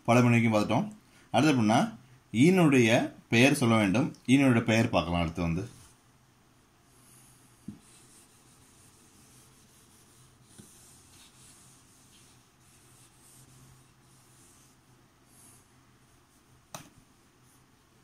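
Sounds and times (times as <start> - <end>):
eraser rubbing on whiteboard: 6.9 - 17.7.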